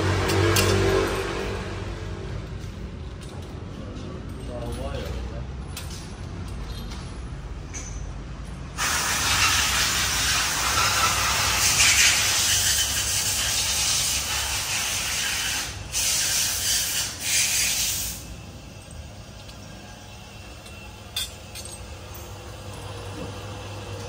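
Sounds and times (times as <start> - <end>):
pressurised gas hissing: 8.8 - 13.6.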